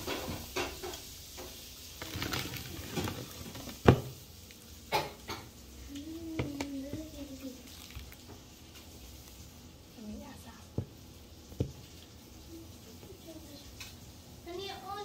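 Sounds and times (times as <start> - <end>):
chewing and handling noises: 7.4 - 9.7.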